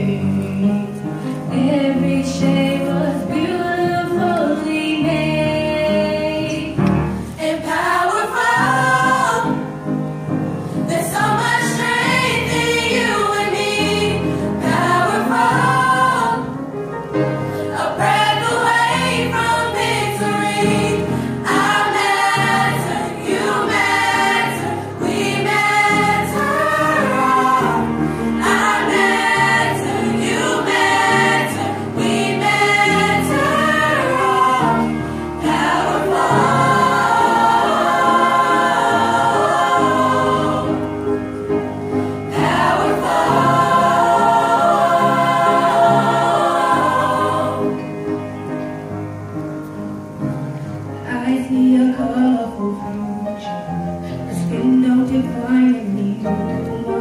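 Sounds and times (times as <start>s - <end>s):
mixed chorus singing: 1.5s - 9.8s, 10.9s - 16.7s, 17.5s - 41.2s, 42.0s - 47.9s.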